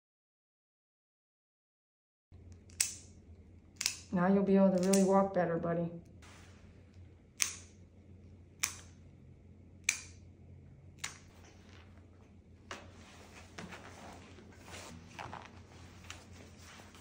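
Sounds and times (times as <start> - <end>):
nail clippers clipping: 2.5 - 5.2, 7.4 - 7.8, 8.6 - 9.0, 9.8 - 10.3, 11.0 - 11.3.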